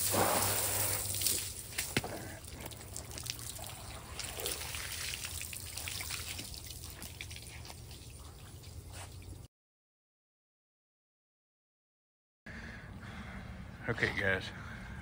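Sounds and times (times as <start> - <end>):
hose water spattering on concrete: 0.0 - 9.3.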